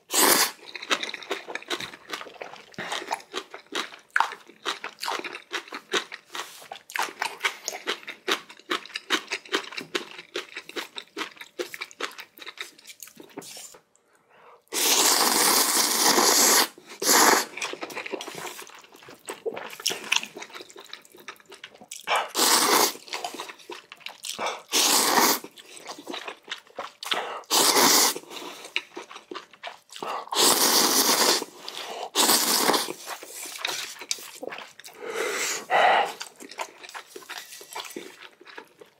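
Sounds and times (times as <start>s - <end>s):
loud noodle slurps: 0.1s - 0.6s, 14.7s - 17.6s, 22.1s - 23.4s, 24.5s - 25.5s, 27.4s - 28.8s, 30.2s - 36.3s
crunchy chewing: 17.0s - 35.0s, 35.7s - 38.9s.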